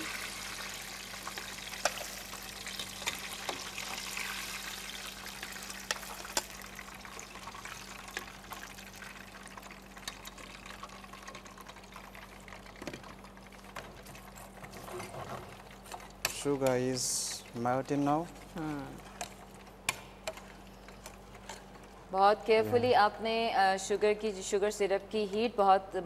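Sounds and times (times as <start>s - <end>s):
oil sizzling: 0.0s - 14.7s.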